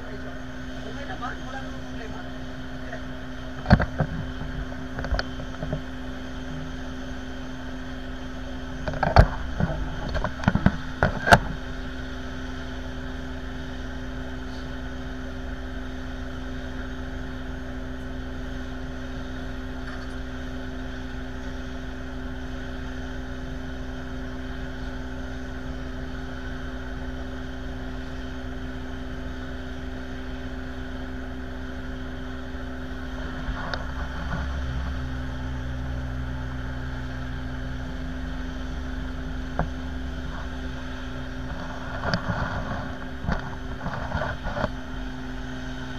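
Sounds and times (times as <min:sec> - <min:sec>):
engine drone: 0:00.0 - 0:45.9.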